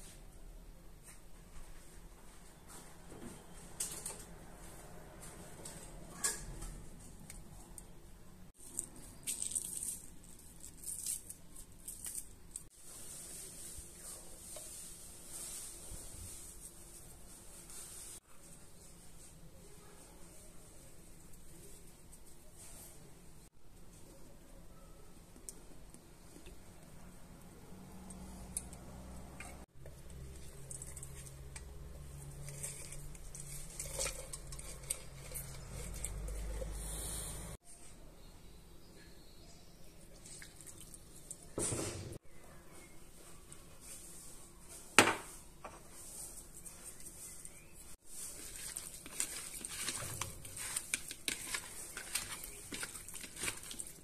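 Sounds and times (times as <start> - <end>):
crackles and clicks of peel: 8.6 - 12.7, 48.2 - 54.0
lemon squelching on hand juicer: 28.0 - 36.8, 48.4 - 54.0.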